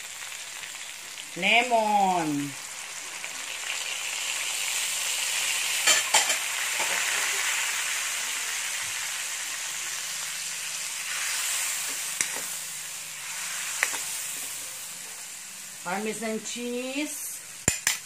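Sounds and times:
food sizzling in a wok: 0.0s - 18.0s
metal utensil knocking wok: 17.6s - 18.0s.

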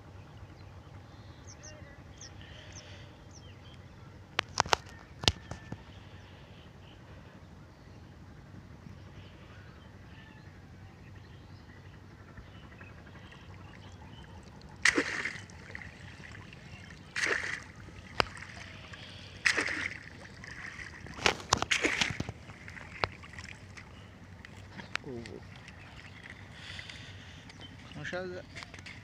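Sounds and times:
crab trap splashing in water: 14.6s - 24.0s.

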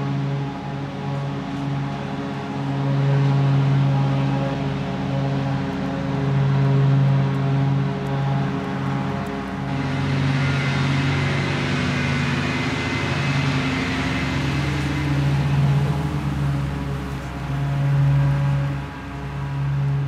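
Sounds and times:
leaf blower engine drone: 0.0s - 20.0s
rush of blown air: 9.6s - 19.7s.

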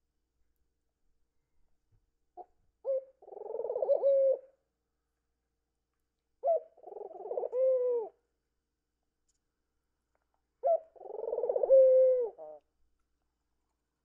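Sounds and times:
dove cooing: 2.8s - 4.5s, 6.4s - 8.2s, 10.6s - 12.6s.

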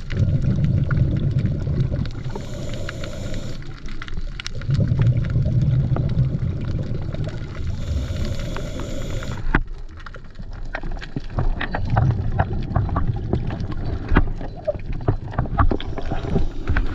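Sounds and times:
underwater clicks and crackles: 0.0s - 16.9s
underwater rumble of moving water: 0.0s - 16.9s
hiss: 2.2s - 3.8s, 7.6s - 9.5s.

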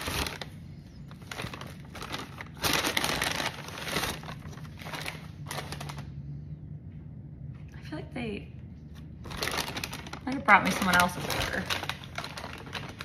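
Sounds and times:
paper bag rustling: 0.0s - 6.2s, 9.2s - 13.0s.

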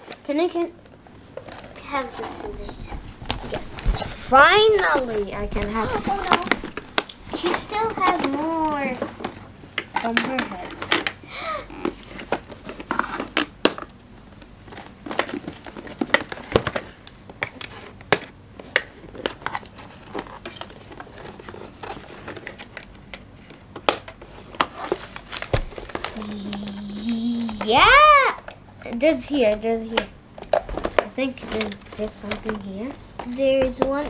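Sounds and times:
packaging crinkling and tearing: 14.7s - 28.1s.

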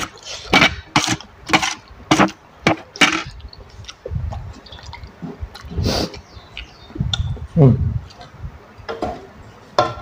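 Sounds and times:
mouth smacks and slurps: 3.3s - 7.3s
soft chewing: 3.3s - 7.3s.

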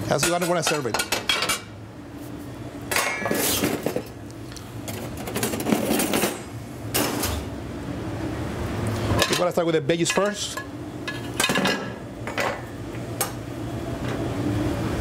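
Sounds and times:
low kitchen hum: 0.0s - 15.0s
plates clattering on steel counter: 0.2s - 1.7s, 2.9s - 4.1s, 9.2s - 13.4s.

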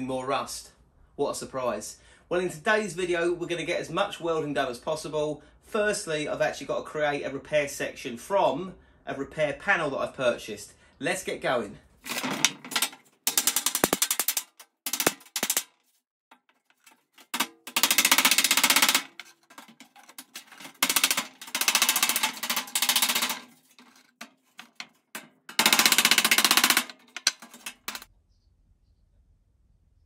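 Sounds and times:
metal taps: 12.1s - 15.6s, 16.4s - 28.1s
metallic chattering of sheet steel cutting: 12.1s - 15.7s, 16.8s - 28.1s.

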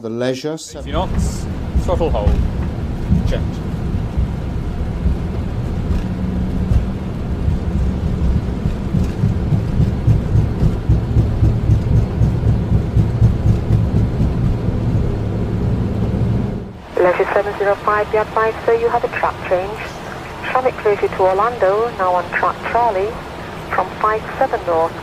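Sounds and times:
jet engines rumbling: 0.7s - 25.0s
wheels running on runway: 0.9s - 16.4s.

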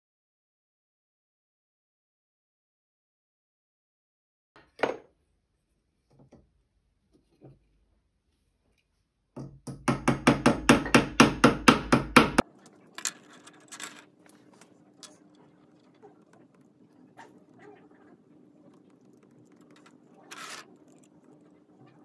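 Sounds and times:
hammer tapping rapidly: 9.7s - 12.4s.

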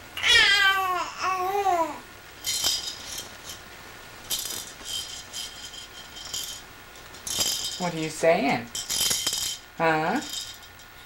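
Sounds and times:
infant cooing: 0.2s - 2.0s
high rattling jingles: 2.4s - 3.6s, 4.2s - 11.0s.

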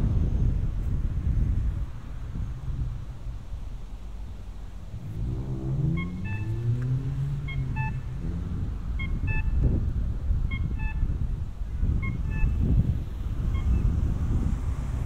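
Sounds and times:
traffic rumble: 0.0s - 15.0s
car engine passing: 4.2s - 9.7s
two-note electronic beep: 5.8s - 8.2s, 9.0s - 9.7s, 10.5s - 11.1s, 12.0s - 12.6s.

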